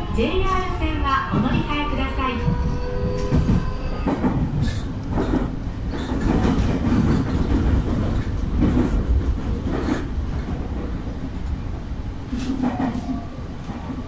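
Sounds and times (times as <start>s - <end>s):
train wheels rumbling on rail: 0.0s - 14.0s
wheels clacking over rail joints: 2.4s - 11.6s.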